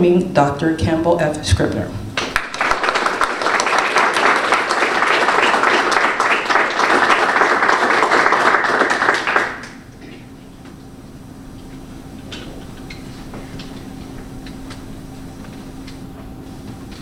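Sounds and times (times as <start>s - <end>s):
faint steady hum: 0.0s - 17.0s
audience applause: 2.2s - 9.8s.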